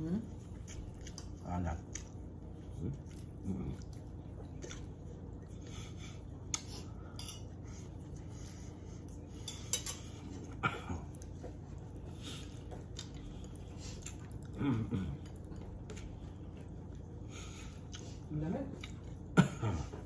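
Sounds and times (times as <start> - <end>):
steady low hum: 0.0 - 20.0
cutlery clinking on plates: 7.1 - 7.5, 9.4 - 10.2.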